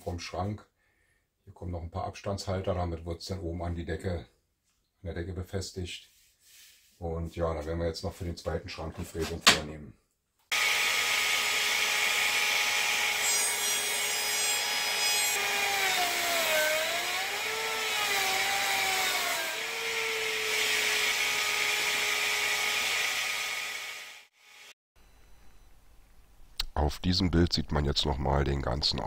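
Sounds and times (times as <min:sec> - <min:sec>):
router milling wood: 0:10.5 - 0:24.7.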